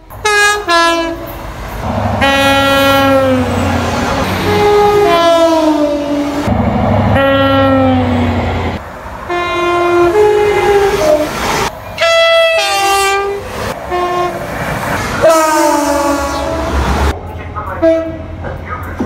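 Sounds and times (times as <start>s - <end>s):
train rumbling past: 0.0s - 19.0s
two-tone train horn: 0.2s - 1.3s, 2.2s - 6.5s, 7.1s - 8.4s, 9.3s - 11.3s, 12.0s - 14.4s, 15.2s - 16.8s, 17.8s - 18.3s.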